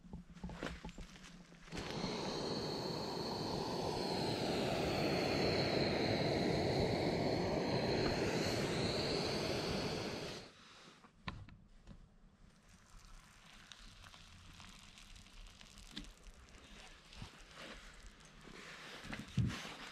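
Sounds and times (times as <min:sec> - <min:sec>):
gas stove hissing: 0:01.7 - 0:10.5.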